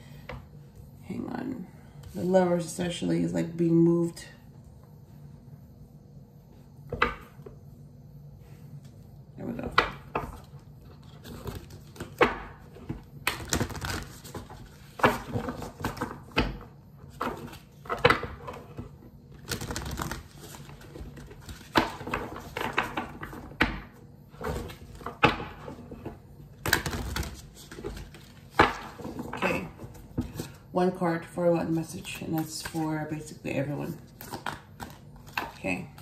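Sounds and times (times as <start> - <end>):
cards being shuffled: 10.3 - 16.2, 19.3 - 23.4, 34.0 - 36.0.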